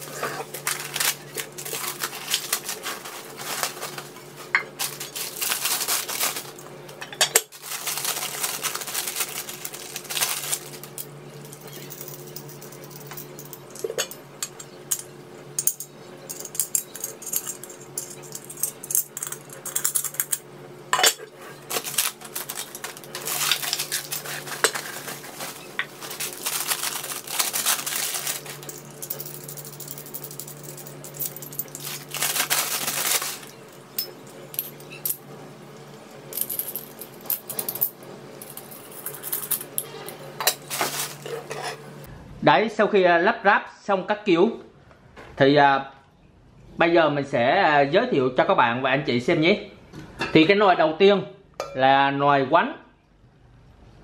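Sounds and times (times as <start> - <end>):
plastic wrapping crinkling: 0.0 - 6.6, 7.5 - 11.0, 21.7 - 29.9, 31.2 - 33.9, 40.6 - 41.5.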